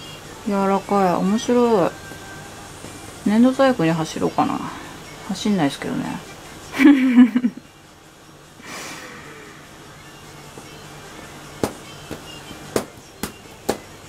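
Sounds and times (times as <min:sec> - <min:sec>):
woman's voice: 0:00.0 - 0:02.2, 0:03.2 - 0:07.0.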